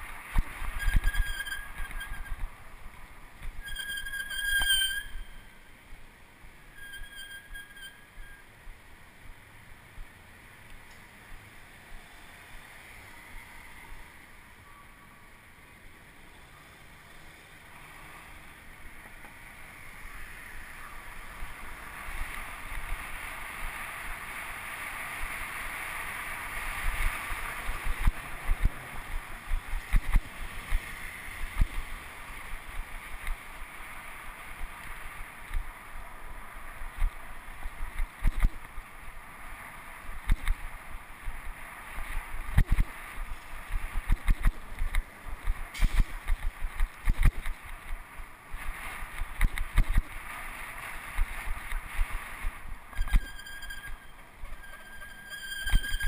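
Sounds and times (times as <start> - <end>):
bicycle road rumble: 0.0 - 56.0
wind rushing over microphone: 26.2 - 33.5, 40.1 - 53.3.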